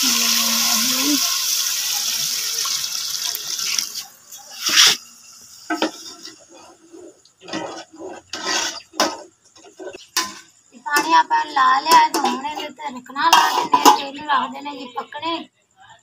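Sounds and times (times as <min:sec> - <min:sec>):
water gushing into hot pot: 0:00.0 - 0:05.0
ladle stirring in pot: 0:05.7 - 0:10.6.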